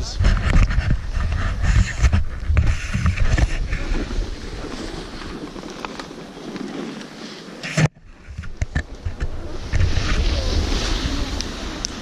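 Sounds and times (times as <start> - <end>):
wind buffeting microphone: 0.0 - 7.1, 7.9 - 12.0.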